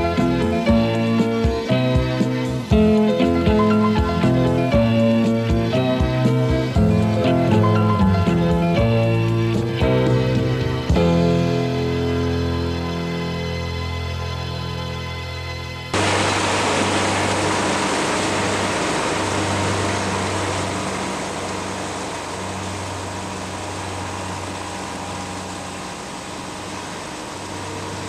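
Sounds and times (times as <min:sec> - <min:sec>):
tractor engine running: 0:00.0 - 0:11.9, 0:15.9 - 0:28.0
music: 0:00.0 - 0:16.0
onion lifter conveyor: 0:16.0 - 0:28.0.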